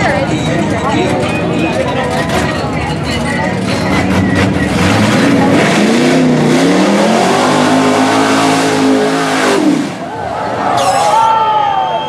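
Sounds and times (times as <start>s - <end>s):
truck engine revving hard: 3.5s - 10.6s.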